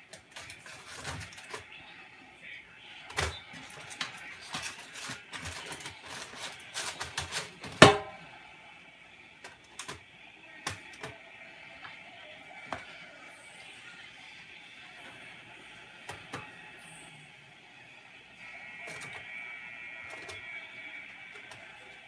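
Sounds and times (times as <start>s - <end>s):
foil and packaging crinkling: 0.0s - 1.7s, 3.1s - 8.1s
small clicks and crackles: 0.0s - 1.8s, 3.0s - 7.8s, 9.4s - 11.2s.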